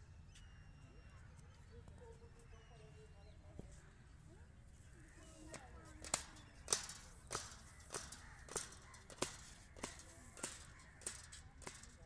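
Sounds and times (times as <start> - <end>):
sharp taps: 5.5 - 12.0.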